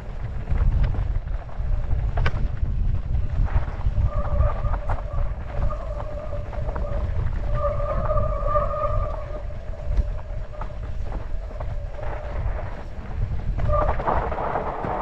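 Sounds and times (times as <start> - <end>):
bike clicks: 0.0 - 15.0
wind rumble on microphone: 0.0 - 15.0
bike disc brake squealing: 4.0 - 12.9.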